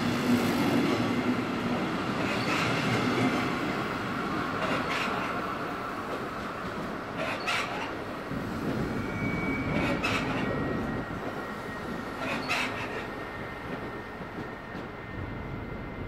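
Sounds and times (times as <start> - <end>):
train rumble: 0.0 - 16.0
train wheel clatter: 1.7 - 3.5, 4.6 - 15.0
faint thin squeal: 8.8 - 16.0.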